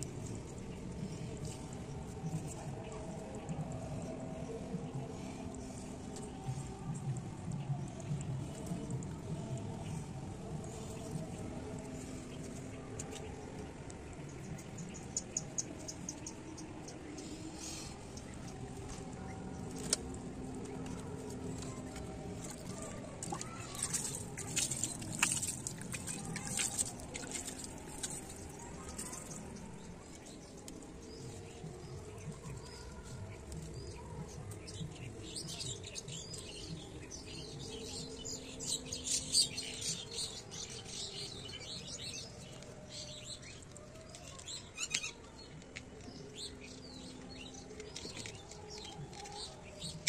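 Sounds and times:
water splashing onto plants: 0:19.6 - 0:31.2.

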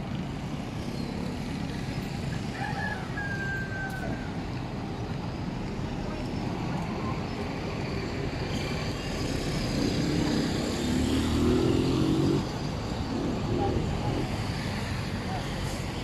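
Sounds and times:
traffic rumble: 0:00.0 - 0:16.0
wind: 0:00.0 - 0:16.0
vehicle engine passing: 0:09.2 - 0:14.7.

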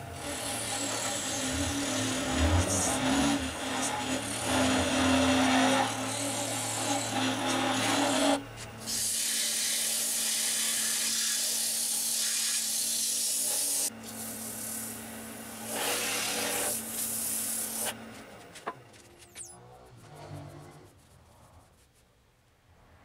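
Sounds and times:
lathe humming: 0:00.0 - 0:20.9
sanding hiss on lathe: 0:00.2 - 0:18.0.

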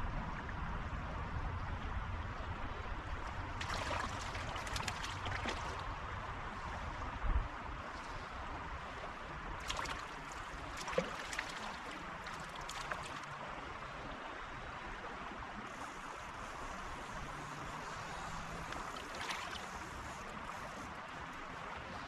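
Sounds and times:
stream running over stones: 0:03.0 - 0:22.0
light clicks and splashes: 0:03.2 - 0:06.0, 0:09.6 - 0:13.4, 0:17.3 - 0:21.5.

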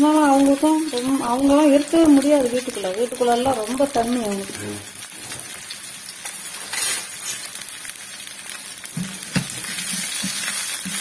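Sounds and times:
onions sizzling in hot oil: 0:00.0 - 0:11.0
metal ladle scraping pan: 0:06.6 - 0:07.5.

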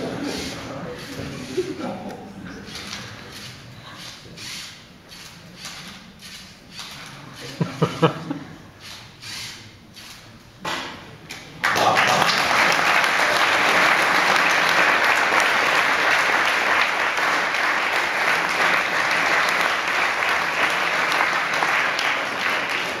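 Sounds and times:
audience applauding: 0:11.6 - 0:23.0.

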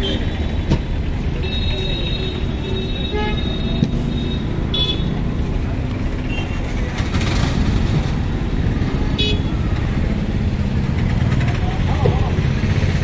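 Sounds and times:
traffic and crowd rumble: 0:00.0 - 0:13.0
vehicle horn toot: 0:01.4 - 0:05.2, 0:09.2 - 0:09.6.

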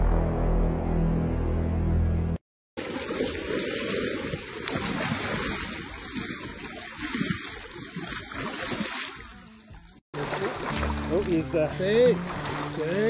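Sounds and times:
river water splashing: 0:02.8 - 0:13.0.

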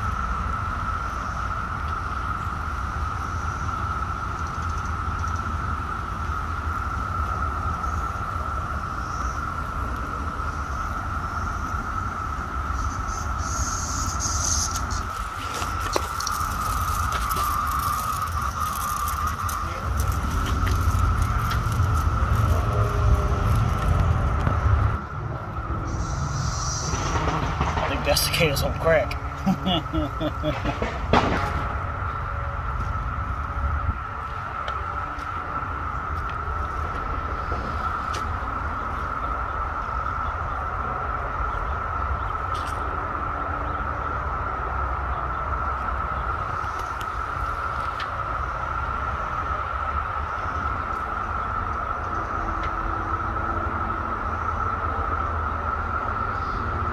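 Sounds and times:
cicadas droning: 0:00.0 - 0:56.9
wind and handling noise: 0:00.0 - 0:56.9
low rumble: 0:14.5 - 0:56.9.

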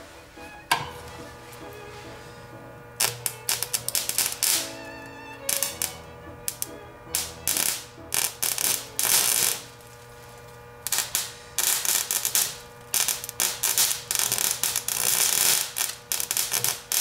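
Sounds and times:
high-voltage arc crackling: 0:01.2 - 0:17.0.

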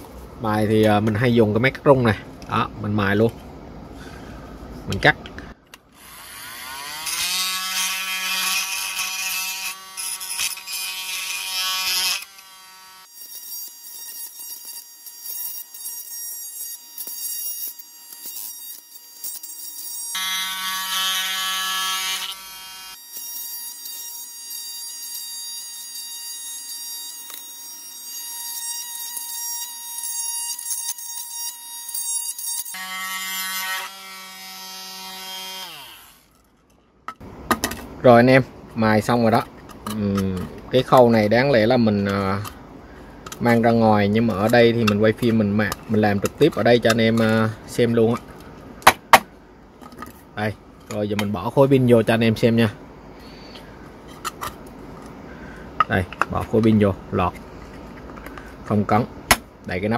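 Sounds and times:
oscillating multi-tool buzzing: 0:06.0 - 0:36.4.

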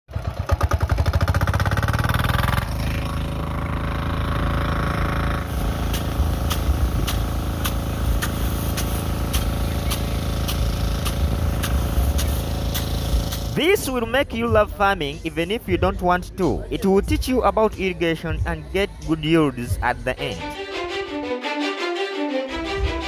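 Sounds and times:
portable water pump engine: 0:00.1 - 0:13.8
sprinkler impact arm ticking: 0:05.5 - 0:13.6.

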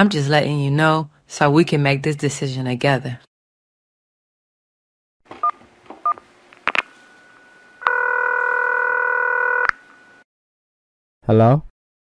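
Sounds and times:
phone ringing tone: 0:06.9 - 0:10.2.

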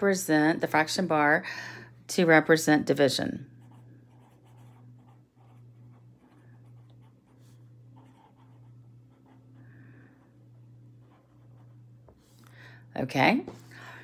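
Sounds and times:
low steady hum: 0:00.0 - 0:14.0
pen scratching on paper: 0:03.6 - 0:09.6, 0:10.5 - 0:12.3.

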